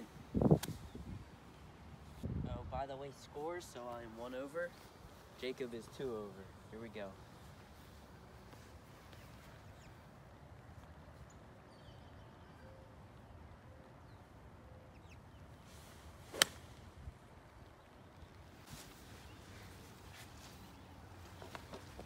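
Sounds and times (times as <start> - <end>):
golf club swish: 0.4 - 1.0, 15.8 - 16.8
golf club striking ball: 16.3 - 16.6.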